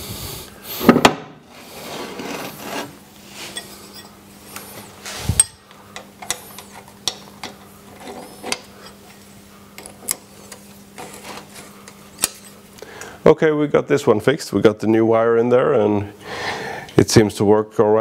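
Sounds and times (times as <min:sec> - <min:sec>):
metal parts scraping and rubbing: 0:01.5 - 0:05.6, 0:06.2 - 0:09.2, 0:09.8 - 0:12.6.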